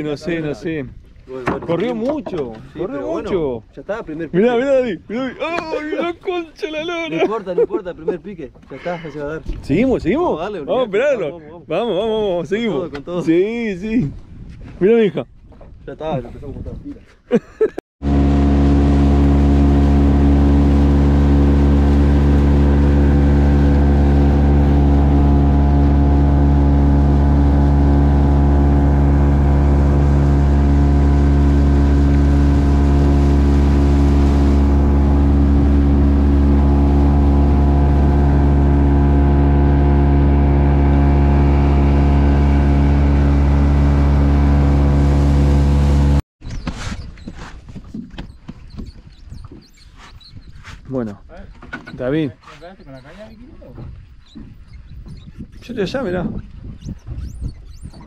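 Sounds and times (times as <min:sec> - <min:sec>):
motorboat engine droning: 0:18.0 - 0:46.2.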